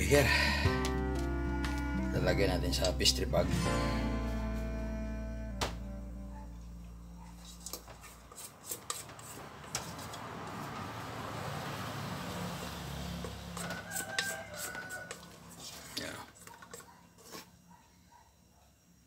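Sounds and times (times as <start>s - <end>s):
spatula scraping batter in bowl: 7.4s - 10.3s, 13.2s - 17.6s.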